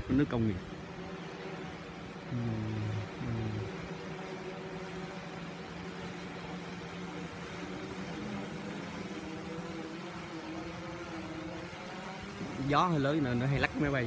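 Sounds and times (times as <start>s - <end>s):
drone motors humming: 0.0s - 14.0s
wind noise hiss: 10.5s - 14.0s.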